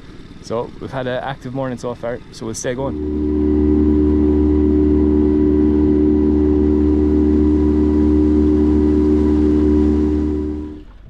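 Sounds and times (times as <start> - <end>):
outboard motor running: 0.0 - 11.0
water rushing under boat: 2.9 - 11.0.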